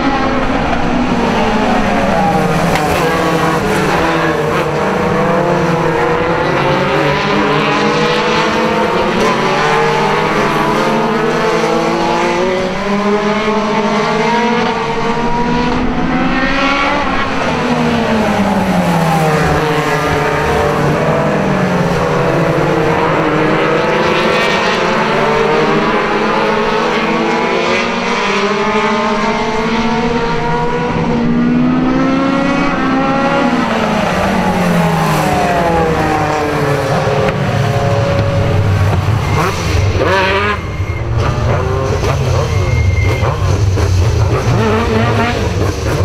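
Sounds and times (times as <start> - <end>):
race car engines revving: 0.0 - 46.0
short high squeals: 42.1 - 43.6.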